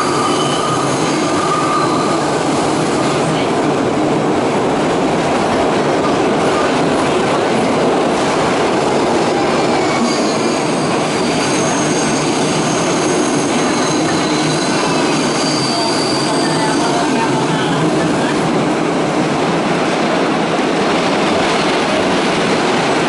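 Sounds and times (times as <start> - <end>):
high-pitched wheel squeal: 0.0 - 2.4, 9.8 - 17.0
rumble of wheels on rail: 0.0 - 23.0.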